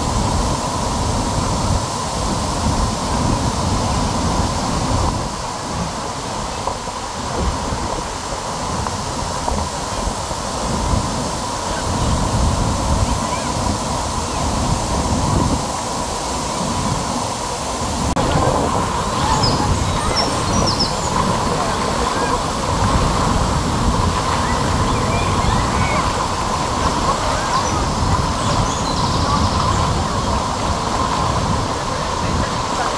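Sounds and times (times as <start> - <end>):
waterfall rushing: 0.0 - 32.9.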